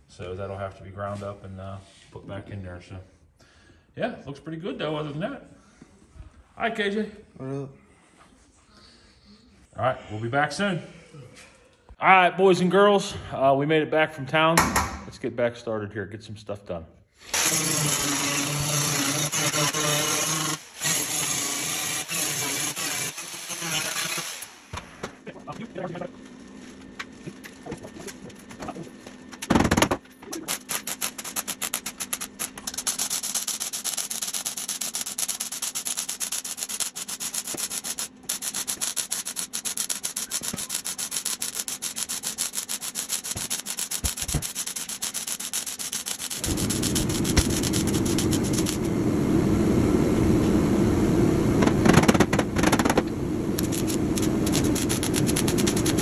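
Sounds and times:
welding arc crackling: 17.3 - 24.8, 30.3 - 56.0.

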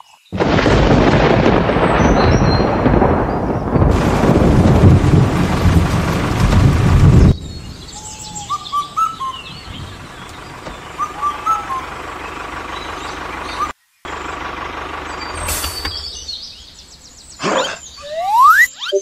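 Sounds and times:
rain hiss: 0.3 - 18.0
birds chirping: 6.0 - 19.0.

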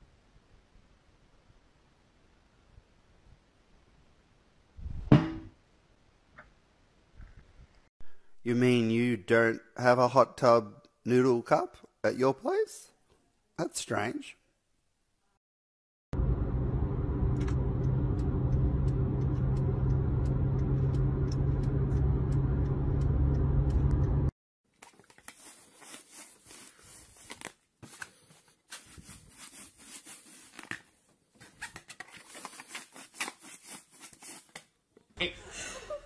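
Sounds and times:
car road and engine noise: 16.2 - 24.3.

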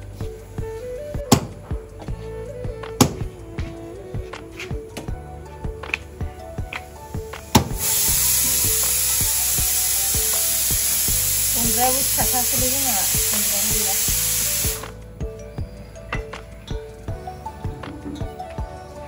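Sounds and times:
loud steady hiss: 6.4 - 15.2
machete chopping on wooden block: 7.6 - 7.8.

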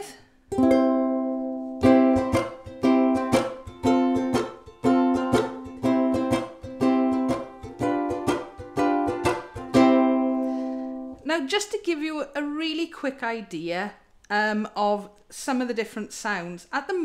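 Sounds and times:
amplified ukulele strumming chords: 0.5 - 11.2.

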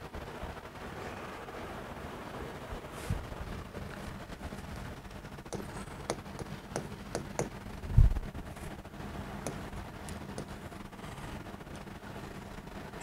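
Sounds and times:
chalk tapping on blackboard: 5.4 - 7.6, 9.4 - 10.6.

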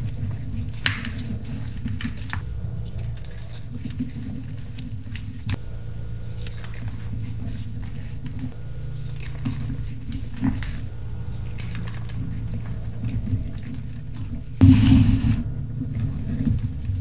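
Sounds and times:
steady low hum: 0.0 - 17.0
chalk crumbling by hand: 6.2 - 17.0.

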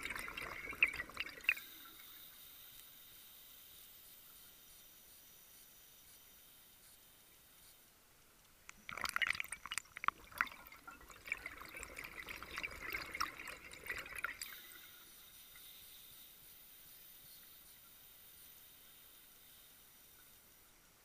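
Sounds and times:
bubbles gurgling underwater: 0.0 - 1.7, 8.9 - 14.8.

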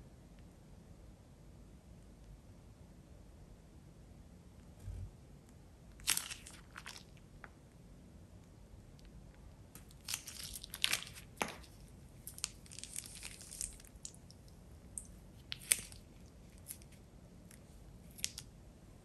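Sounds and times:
plastic piping bag crinkling: 6.0 - 7.1, 9.8 - 17.0.

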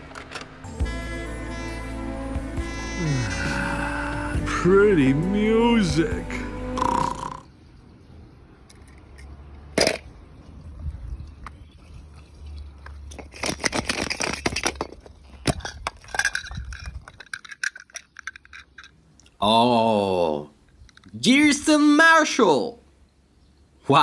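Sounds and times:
plastic toys clicking and scraping: 8.6 - 10.1, 12.8 - 19.0.

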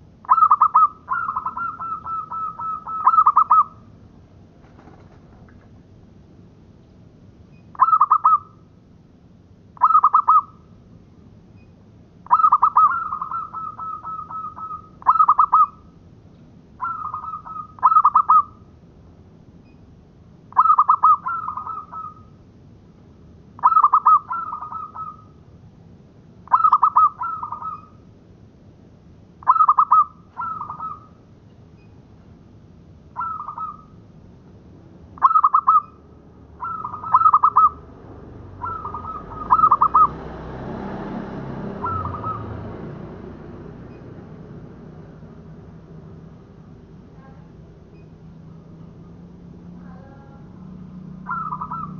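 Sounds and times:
dove cooing: 0.2 - 3.9, 7.8 - 8.6, 9.8 - 10.6, 12.3 - 15.8, 16.8 - 18.6, 20.5 - 22.3, 23.6 - 25.3, 26.5 - 28.0, 29.4 - 31.2, 33.2 - 34.0, 35.2 - 36.0, 36.6 - 37.9, 38.6 - 40.2, 41.7 - 42.7, 51.2 - 51.9.

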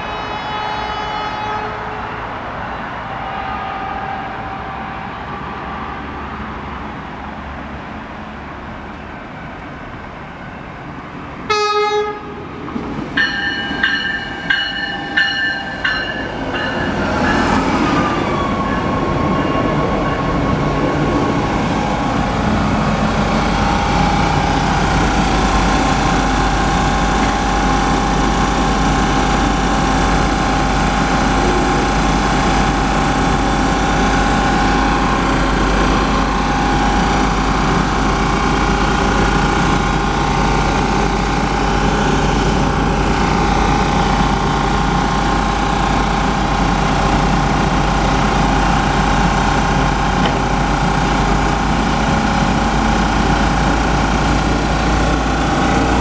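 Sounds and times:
train horn blast: 0.0 - 2.4, 11.5 - 12.4.

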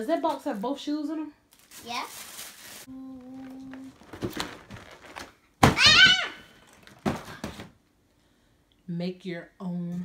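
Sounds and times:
gift boxes rustling and knocking: 3.2 - 7.8.

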